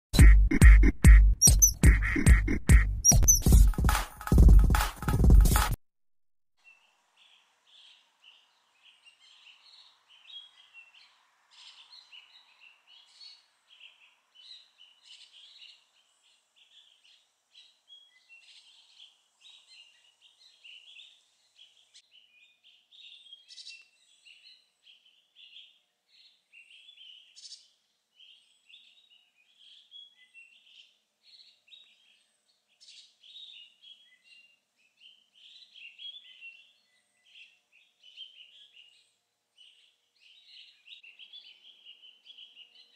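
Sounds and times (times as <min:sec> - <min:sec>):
birds chirping: 0:00.9 - 0:05.5.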